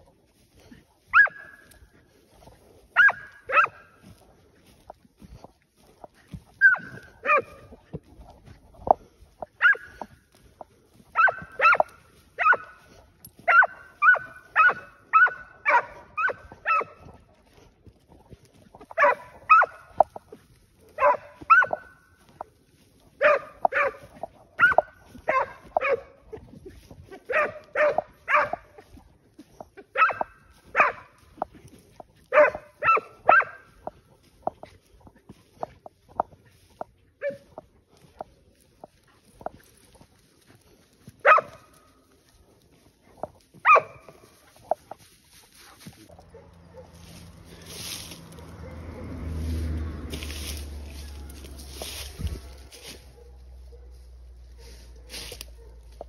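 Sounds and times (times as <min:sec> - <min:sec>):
dog barking: 0:01.1 - 0:01.8, 0:02.9 - 0:04.0, 0:06.6 - 0:07.8, 0:09.6 - 0:10.2, 0:11.1 - 0:17.2, 0:18.9 - 0:20.2, 0:20.8 - 0:22.0, 0:23.2 - 0:26.4, 0:27.1 - 0:29.0, 0:29.8 - 0:31.5, 0:32.2 - 0:33.9, 0:37.2 - 0:37.5, 0:41.2 - 0:41.8, 0:43.6 - 0:44.3, 0:46.1 - 0:47.7, 0:48.4 - 0:49.3, 0:52.2 - 0:56.0.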